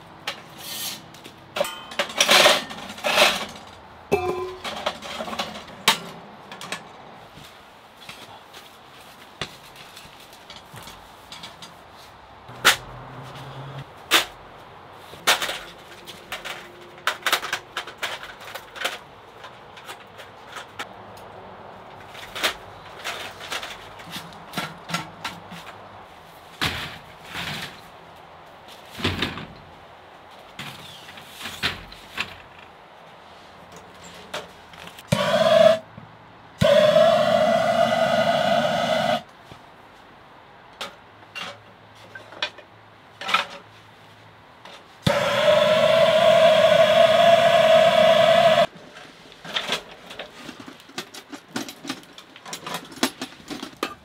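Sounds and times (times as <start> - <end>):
sharp metal clanks: 1.6 - 2.8, 4.1 - 5.2
gas torch rushing: 35.1 - 35.9, 36.6 - 39.3, 45.1 - 48.7.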